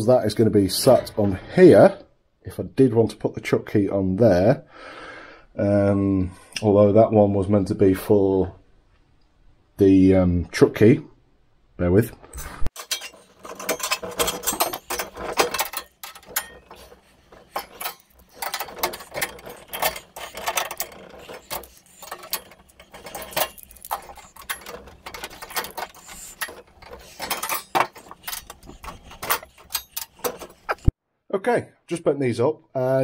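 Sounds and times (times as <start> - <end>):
metal clicks knocks and scrapes: 12.7 - 31.0
tools touching steel: 12.8 - 30.9.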